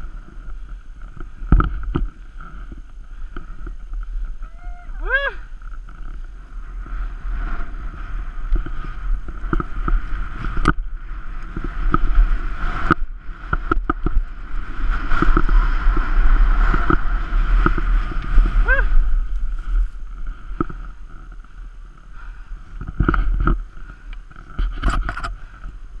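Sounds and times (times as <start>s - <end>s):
clicks and knocks from skis: 0.0s - 4.5s, 5.5s - 25.9s
skis scraping over snow: 0.0s - 26.0s
wind buffeting microphone: 0.0s - 26.0s.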